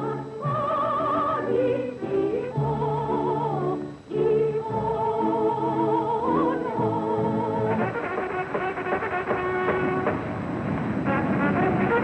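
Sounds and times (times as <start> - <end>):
person singing with vibrato: 0.0 - 8.2
instrumental accompaniment: 0.0 - 12.0.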